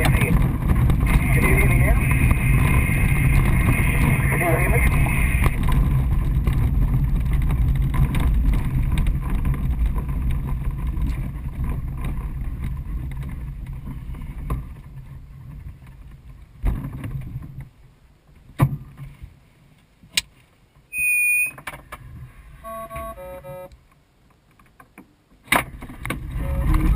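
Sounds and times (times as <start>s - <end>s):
glider wheel rumbling on grass: 0.0s - 19.7s, 25.6s - 26.9s
high electronic beep: 1.2s - 5.6s, 20.9s - 21.6s, 22.6s - 23.7s.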